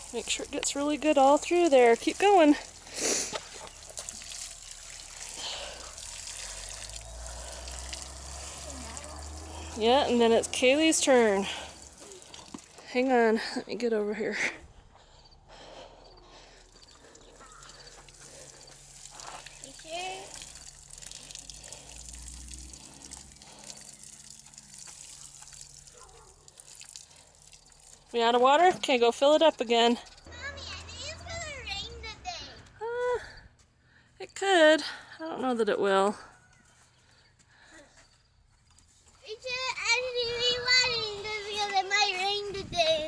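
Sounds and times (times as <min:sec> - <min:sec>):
watering can sprinkling onto soil: 0:00.0 - 0:12.9, 0:17.4 - 0:30.0.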